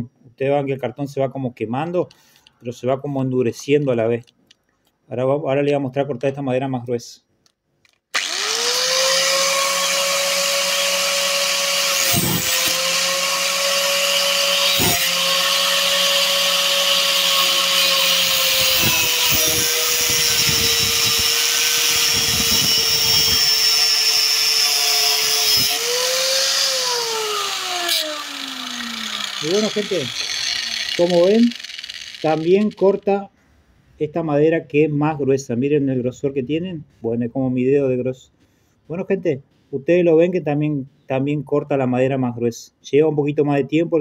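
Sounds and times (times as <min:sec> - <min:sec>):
angle grinder whining: 0:08.1 - 0:33.1
grinder cutting through wood: 0:08.1 - 0:33.1.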